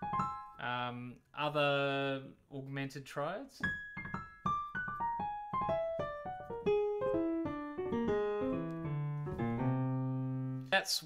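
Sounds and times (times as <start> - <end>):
jazz piano run: 0.0 - 0.6, 3.6 - 10.8
low piano chord: 3.7 - 10.7.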